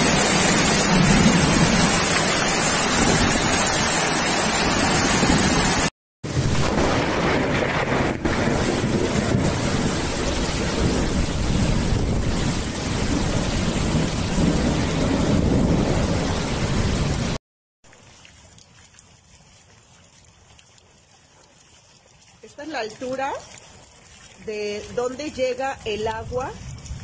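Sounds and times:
torrential rain pouring: 0:00.0 - 0:17.4.

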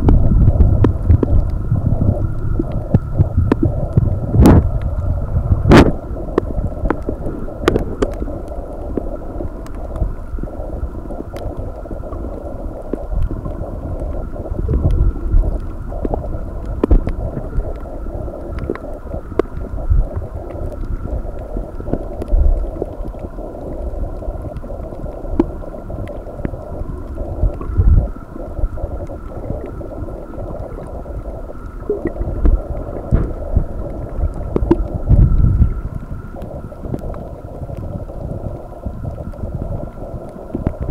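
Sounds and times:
faint steady hum: 0:00.0 - 0:40.9
underwater water wash: 0:00.0 - 0:40.9
faint clicks: 0:00.8 - 0:01.6, 0:05.8 - 0:10.2, 0:11.1 - 0:28.2, 0:28.9 - 0:40.9
low thumps: 0:32.1 - 0:33.8.

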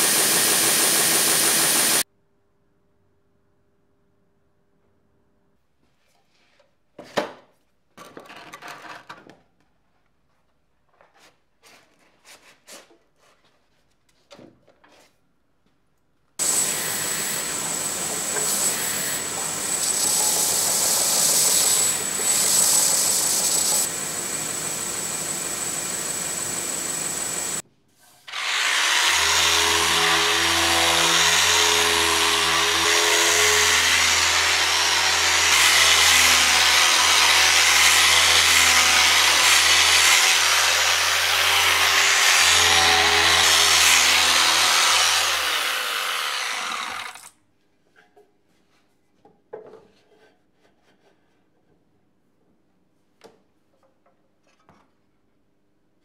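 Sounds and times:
linear sander on wood: 0:00.0 - 0:02.0, 0:16.4 - 0:27.6, 0:28.3 - 0:47.2
belt sander whining: 0:16.4 - 0:27.6.

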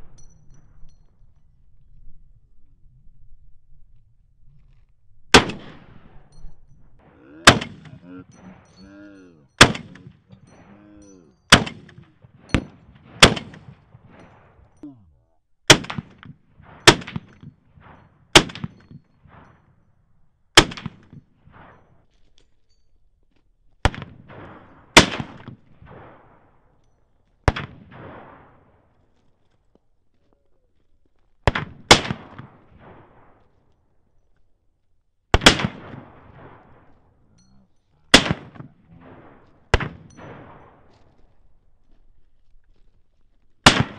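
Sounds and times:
rifle shots echoing: 0:05.3 - 0:06.3, 0:07.0 - 0:08.8, 0:09.6 - 0:10.7, 0:11.5 - 0:14.6, 0:15.7 - 0:19.6, 0:20.6 - 0:21.9, 0:23.8 - 0:26.8, 0:27.4 - 0:29.0, 0:31.4 - 0:33.6, 0:35.3 - 0:37.2, 0:38.1 - 0:41.5, 0:43.6 - 0:43.9.

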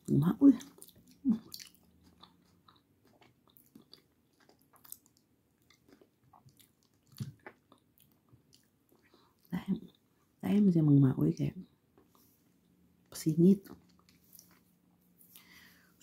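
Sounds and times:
person chewing food: 0:00.6 - 0:10.2, 0:13.6 - 0:16.0.

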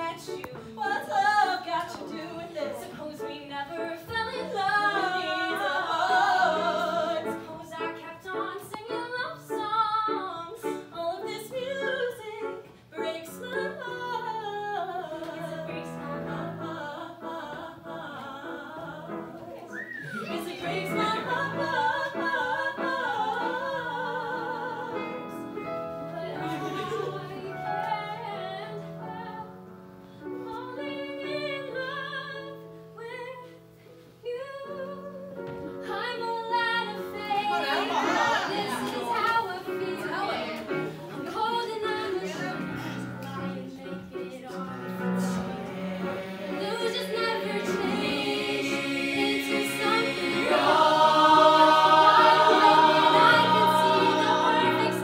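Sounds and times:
woman singing lead: 0:00.0 - 0:25.3, 0:34.2 - 0:45.7
ensemble singing: 0:43.6 - 0:55.0.

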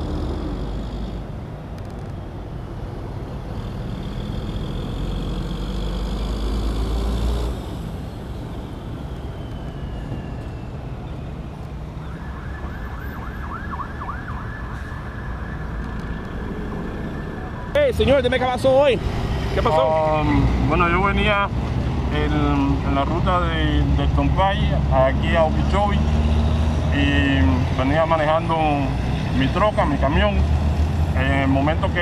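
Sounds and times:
rumble of heavy vehicle engines: 0:00.0 - 0:32.0
emergency vehicle siren: 0:08.2 - 0:20.7.

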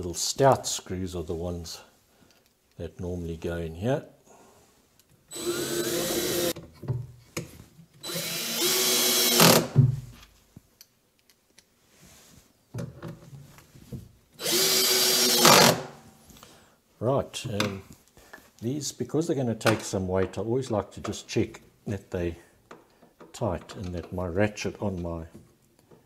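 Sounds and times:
cordless drill driving screws: 0:05.3 - 0:06.6, 0:08.0 - 0:09.8, 0:14.4 - 0:15.8.

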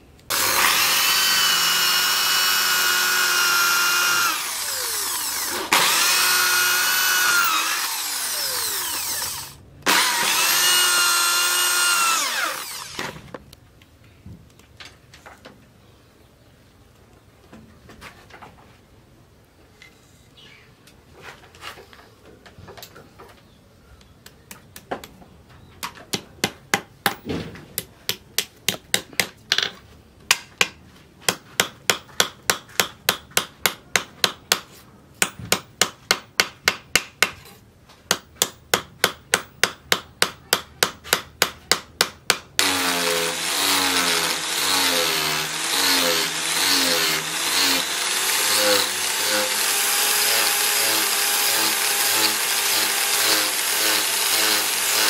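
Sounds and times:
angle grinder sanding wood: 0:00.3 - 0:13.2, 0:42.6 - 0:55.0.

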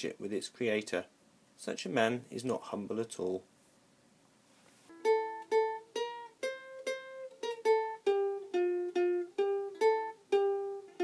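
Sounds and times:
plucked string melody: 0:04.9 - 0:11.0.

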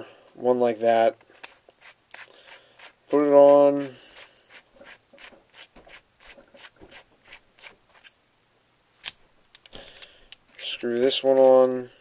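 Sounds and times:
metal threads scraping and clicking: 0:09.0 - 0:11.8.

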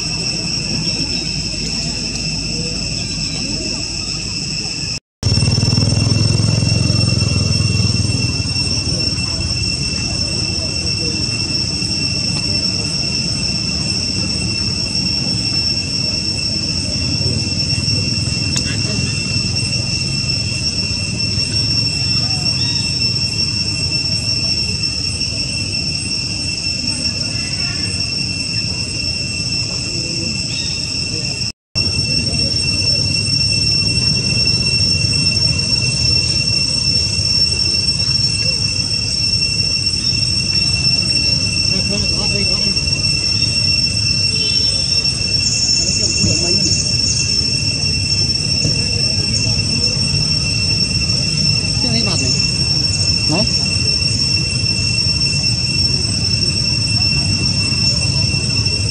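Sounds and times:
cicadas droning: 0:00.0 - 0:58.9.

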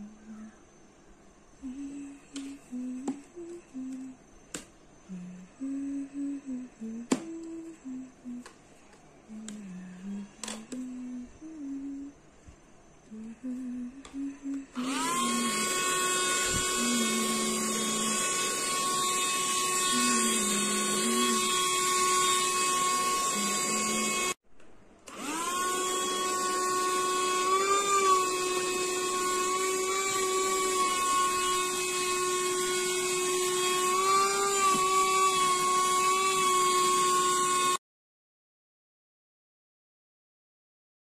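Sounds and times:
handheld vacuum motor whine: 0:02.3 - 0:04.7, 0:09.3 - 0:12.0, 0:13.1 - 0:24.4, 0:25.1 - 0:37.8.

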